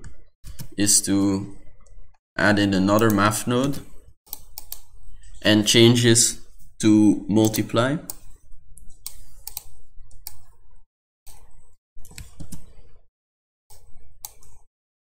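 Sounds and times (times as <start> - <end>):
mouse clicks: 4.3 - 4.9, 7.4 - 10.6.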